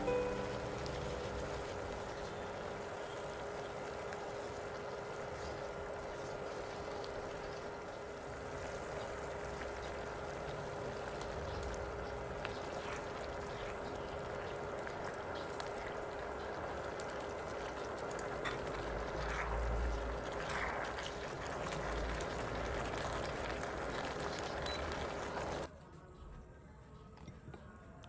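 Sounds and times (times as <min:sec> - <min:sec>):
steady hum: 0:00.0 - 0:20.8
broth simmering and bubbling: 0:00.0 - 0:25.7.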